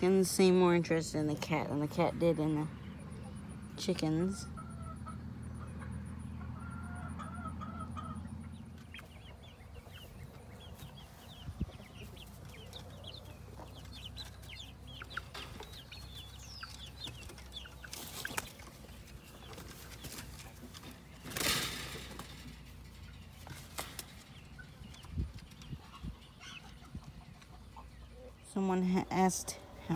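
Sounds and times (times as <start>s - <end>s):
chicks peeping and clucking: 0.0s - 29.9s
wings flapping: 23.4s - 24.3s.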